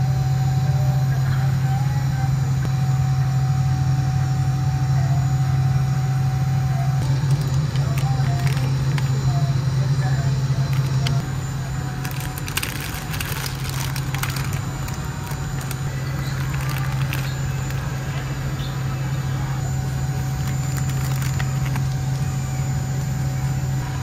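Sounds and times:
low shop hum: 0.0s - 24.0s
plastic packets crinkling: 7.0s - 9.2s, 10.7s - 11.2s, 12.0s - 18.0s, 19.9s - 22.2s.

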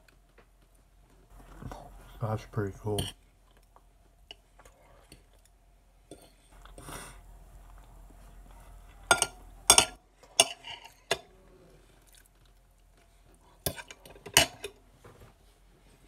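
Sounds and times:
cutlery clinking on a plate: 9.1s - 11.3s, 13.7s - 14.8s.

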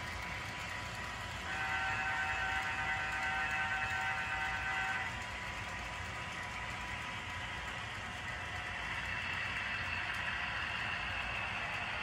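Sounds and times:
diesel engine rumble with hiss: 0.0s - 12.0s
model train horn: 1.4s - 5.3s.

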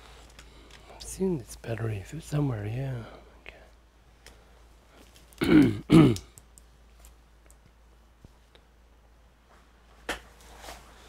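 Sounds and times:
man's short vocal sounds: 5.4s - 6.3s.

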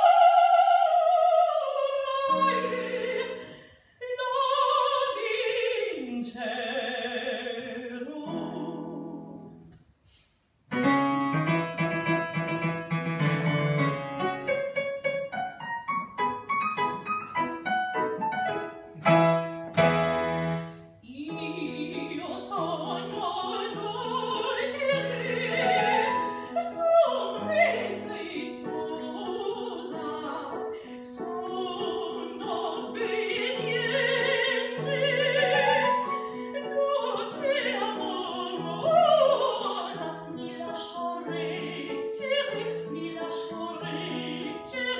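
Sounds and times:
woman singing operatically: 0.0s - 3.4s, 4.0s - 9.4s, 21.0s - 44.9s
digital piano: 10.7s - 23.0s.

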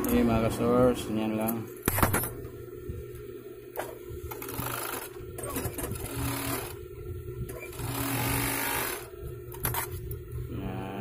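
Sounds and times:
overlock sewing machine stitching: 4.3s - 6.8s, 7.5s - 9.1s.

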